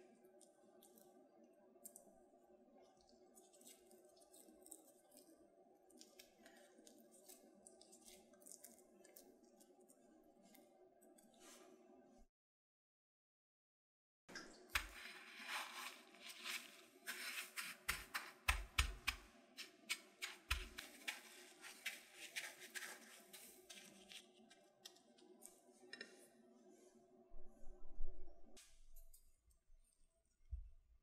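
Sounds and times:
breadcrumbs crunching and rustling: 2.8s - 10.7s, 14.6s - 25.5s.

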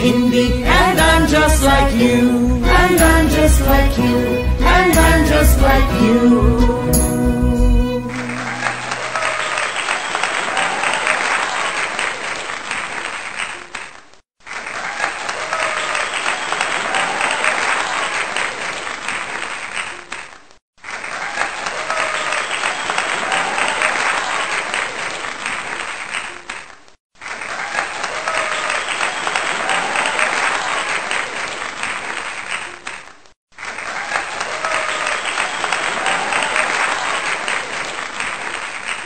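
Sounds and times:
crowd applause: 8.1s - 13.8s, 14.5s - 20.1s, 20.8s - 26.4s, 27.2s - 32.9s, 33.6s - 39.0s.

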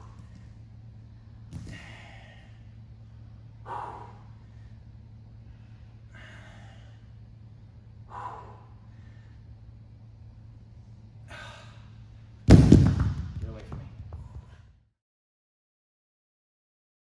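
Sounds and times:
steady low hum: 0.0s - 15.0s
man breathing hard: 1.1s - 7.4s, 8.0s - 9.7s, 11.2s - 12.1s.

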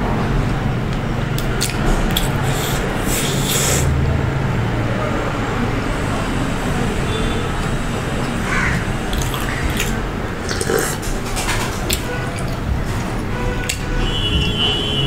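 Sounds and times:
chewing crunchy food: 1.4s - 3.7s, 9.0s - 13.9s.

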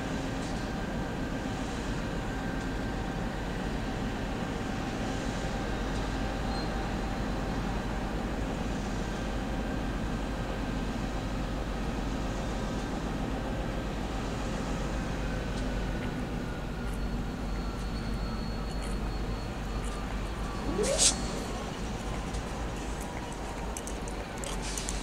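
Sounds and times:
locomotive engines humming: 13.2s - 25.0s.

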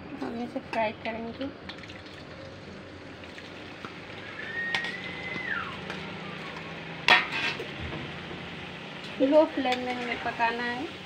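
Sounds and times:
hot oil sizzling and bubbling: 0.0s - 11.0s
falling whistle-like tone: 4.2s - 6.9s.

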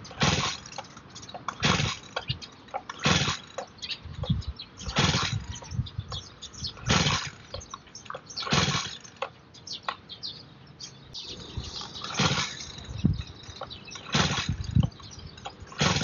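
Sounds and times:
recoil starter rasping pulls: 0.0s - 5.7s, 6.6s - 9.3s, 11.8s - 16.0s.

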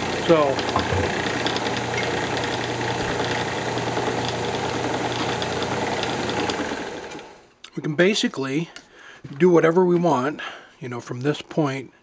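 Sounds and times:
wood lathe running: 0.0s - 7.5s.

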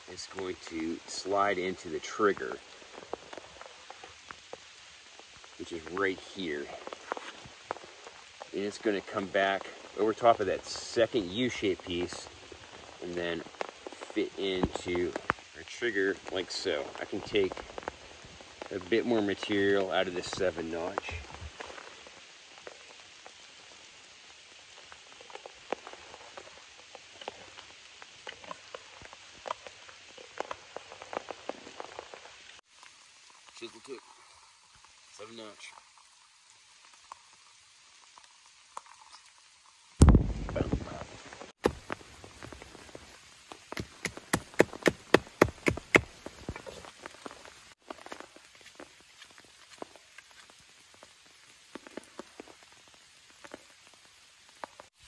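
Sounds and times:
steady rain falling: 0.0s - 55.0s
knife chopping into wood: 41.6s - 41.9s, 43.8s - 46.1s
sharp ticks and clicks: 43.6s - 46.8s.

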